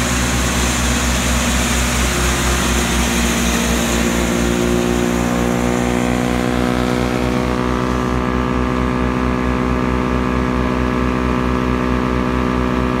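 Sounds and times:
high rushing noise: 0:00.0 - 0:09.6
chipper-shredder droning: 0:00.0 - 0:13.0
tractor engine: 0:00.0 - 0:13.0.

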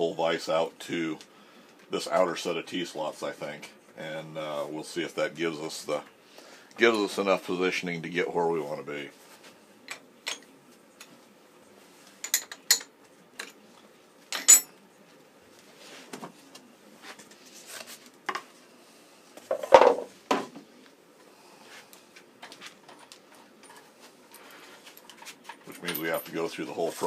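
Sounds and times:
metal vise clinking on steel table: 0:14.4 - 0:14.7.

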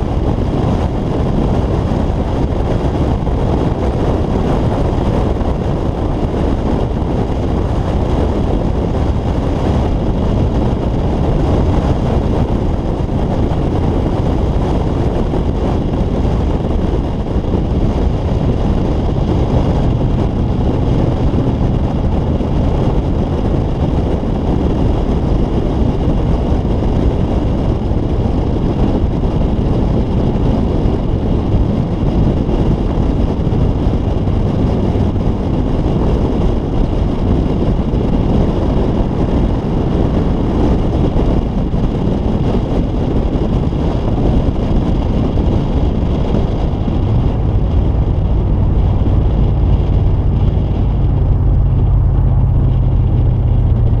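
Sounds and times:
road noise: 0:00.0 - 0:54.0
wind on microphone: 0:00.0 - 0:54.0
low steady hum: 0:44.8 - 0:54.0.

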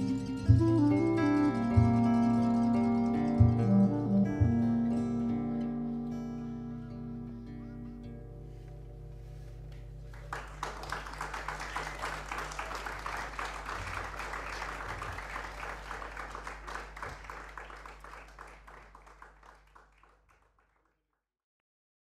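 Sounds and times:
audience applauding: 0:10.1 - 0:20.9.

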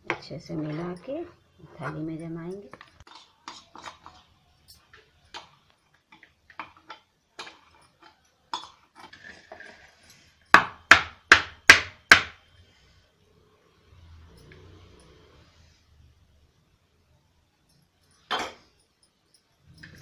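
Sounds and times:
spoon scraping steel pan: 0:03.0 - 0:04.2.

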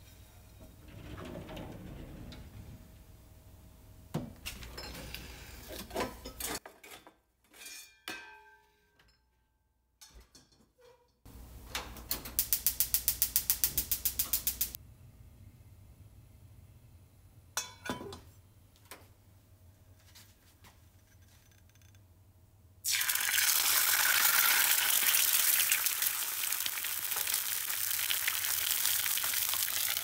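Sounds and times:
gas igniter clicking rapidly: 0:12.4 - 0:14.8.

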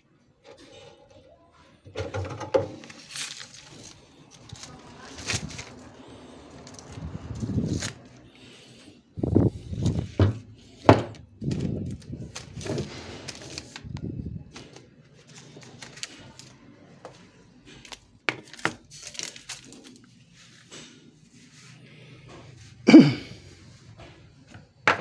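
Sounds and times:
plastic film rustling: 0:02.7 - 0:21.6.

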